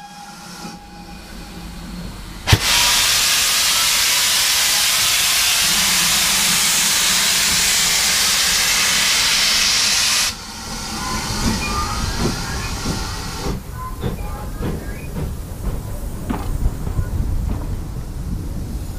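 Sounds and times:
steam hissing: 0:00.0 - 0:18.9
train rumbling past: 0:00.0 - 0:18.9
knocks: 0:13.5 - 0:17.7.

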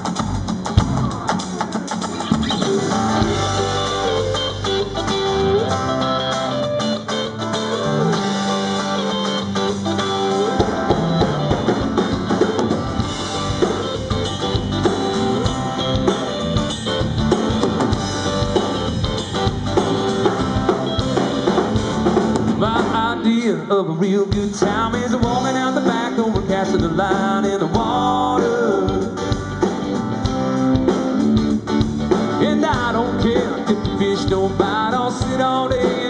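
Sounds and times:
bass guitar: 0:00.0 - 0:36.0
drum kit: 0:00.0 - 0:36.0
electric and acoustic guitars: 0:00.0 - 0:36.0.

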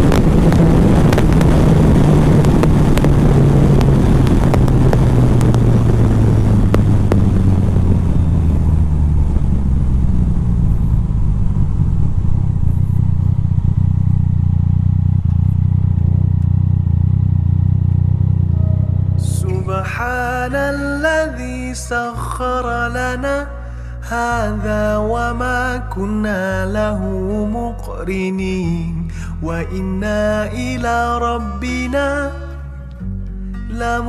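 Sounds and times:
wind rush: 0:00.0 - 0:16.3
motorcycle engine running: 0:00.0 - 0:21.0
music: 0:18.5 - 0:34.0.

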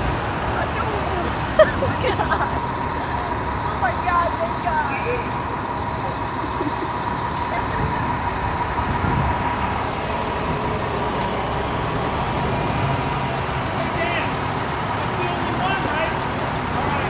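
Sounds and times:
heavy truck engine rumbling: 0:00.0 - 0:17.0.

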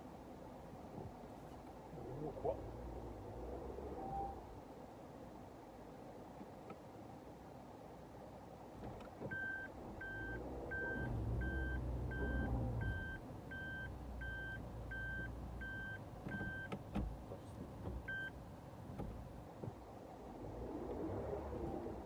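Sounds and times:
reverse warning beeper: 0:09.4 - 0:16.7
car engine running low: 0:09.7 - 0:22.0.

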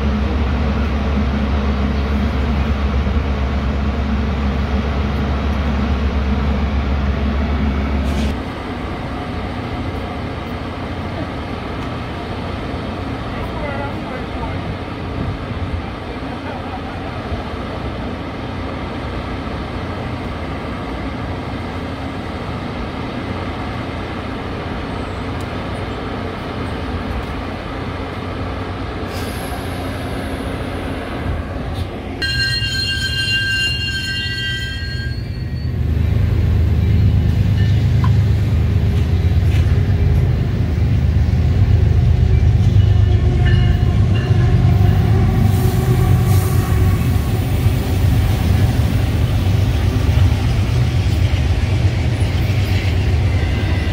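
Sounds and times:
train rumble: 0:00.0 - 0:53.9
train running hum: 0:00.0 - 0:53.9
train wheel squeal: 0:32.2 - 0:35.9.

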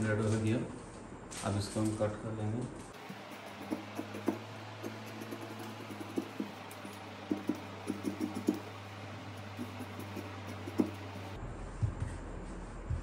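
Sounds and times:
steady low hum: 0:02.9 - 0:13.0
scissors snipping fabric: 0:03.0 - 0:11.4.

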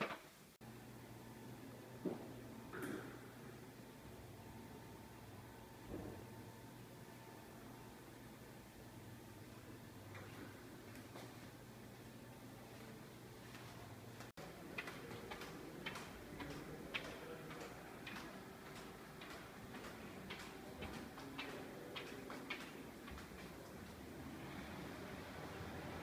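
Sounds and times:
faint steady hum: 0:00.0 - 0:26.0
footsteps on tiled floor: 0:12.7 - 0:24.0.

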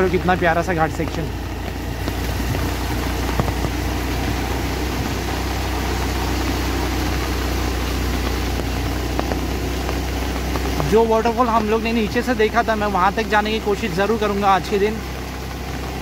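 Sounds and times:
heavy rain: 0:00.0 - 0:16.0
vehicle engine running: 0:00.0 - 0:16.0
wind rushing: 0:01.9 - 0:09.4.

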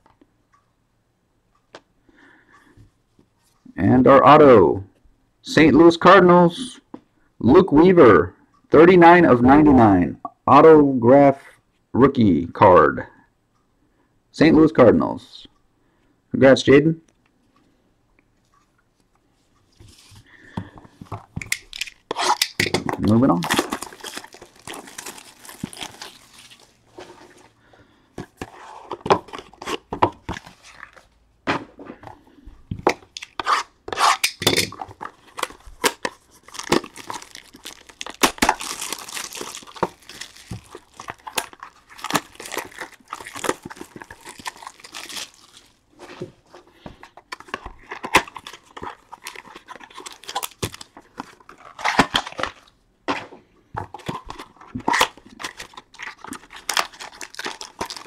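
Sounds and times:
packaging tearing and crinkling: 0:21.6 - 0:26.8, 0:34.1 - 0:45.8, 0:47.2 - 0:52.7, 0:54.0 - 0:58.0.

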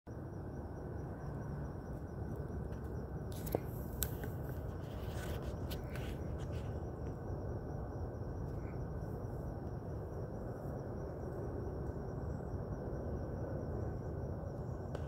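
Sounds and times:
low outdoor background noise: 0:00.1 - 0:15.0
rustles and clicks: 0:02.7 - 0:07.2.

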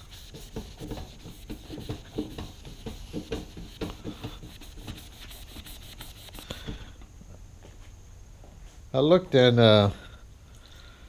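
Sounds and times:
wet eraser sponge scrubbing: 0:00.0 - 0:06.4.

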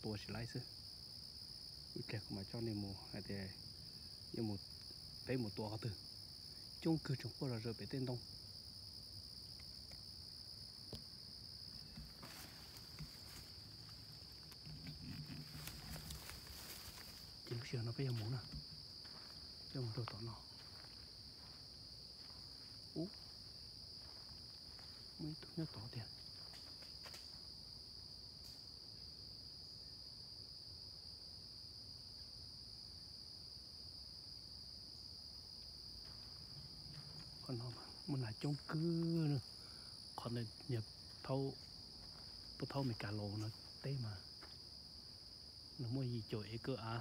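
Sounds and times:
high-pitched insect chorus trilling: 0:00.0 - 0:47.0
footsteps crunching through leaf litter: 0:12.1 - 0:18.3.

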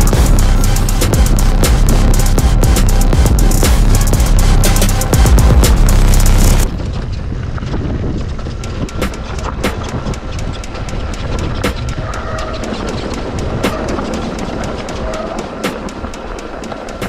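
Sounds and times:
music with drum beat: 0:00.0 - 0:06.7, 0:08.6 - 0:17.0
mountain bike rattling: 0:00.0 - 0:17.0
tyre and wind rush: 0:00.0 - 0:17.0.

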